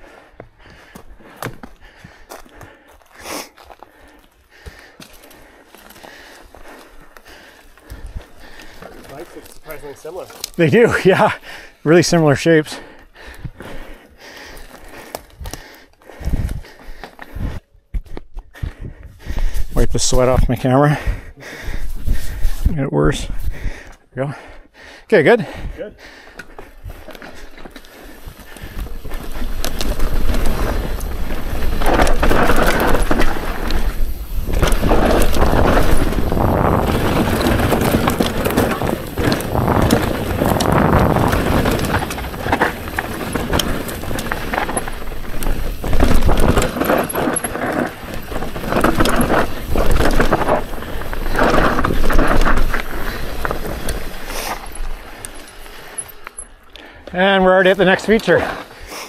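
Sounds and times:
bike tyres rolling over dirt: 0.0s - 23.8s, 26.2s - 59.0s
bike rattling and knocking: 3.6s - 11.4s, 26.3s - 58.7s.

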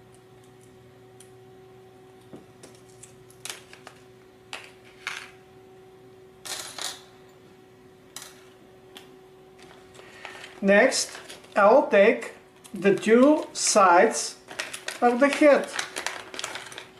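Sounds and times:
faint steady hum: 0.0s - 16.9s
plastic bag crinkling: 9.6s - 16.9s.

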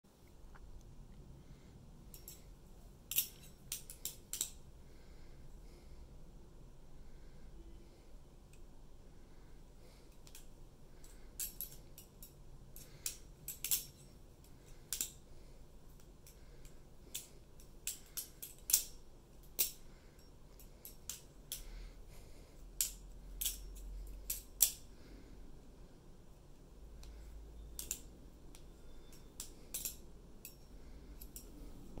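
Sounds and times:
butterfly knife clicking: 27.8s - 30.6s.

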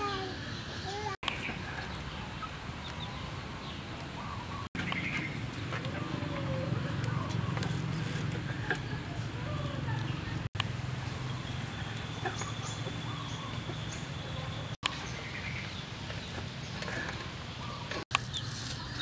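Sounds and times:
bird chirps: 11.1s - 17.0s.

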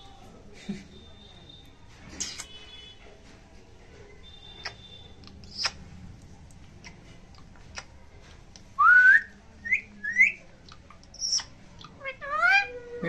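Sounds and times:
parakeet chirps: 4.4s - 5.8s, 9.7s - 12.8s.

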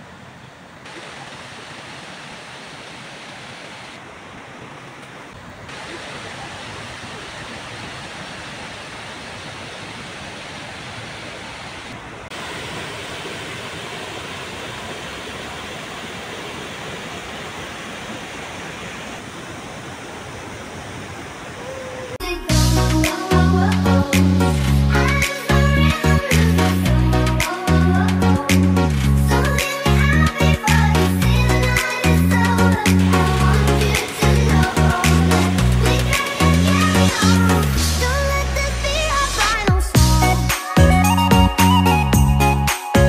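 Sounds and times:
stream splashing over rocks: 0.1s - 21.6s, 33.0s - 39.2s.

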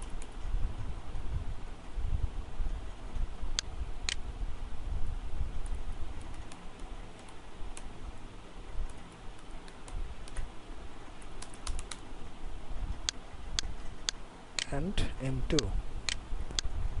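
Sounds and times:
keyboard keys clicking: 11.2s - 12.0s.

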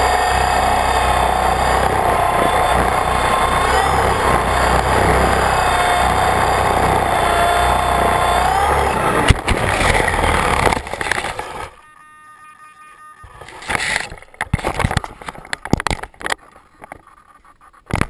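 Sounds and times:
rc helicopter rotor whining: 0.0s - 11.8s
rotor thrashing through grass: 0.0s - 11.8s
helicopter crash impact: 9.2s - 11.6s.

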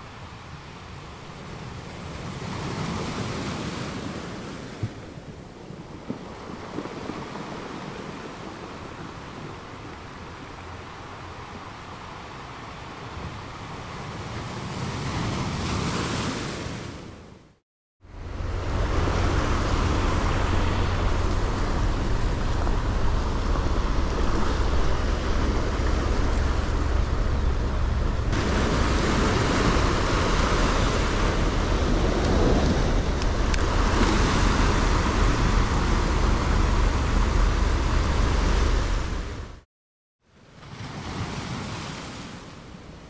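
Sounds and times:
surf washing over rocks: 0.0s - 17.1s, 18.2s - 39.6s
wind buffeting microphone: 4.7s - 12.1s, 18.2s - 39.6s.

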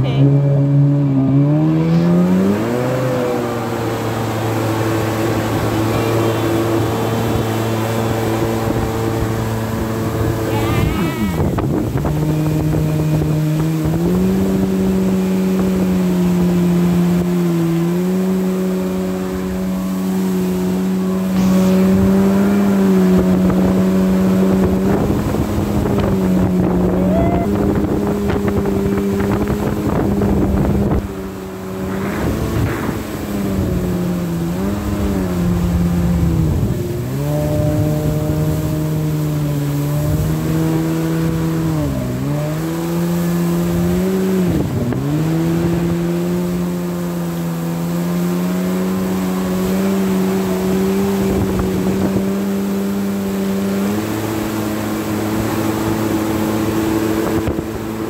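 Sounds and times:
jet ski engine drone: 0.0s - 58.0s.

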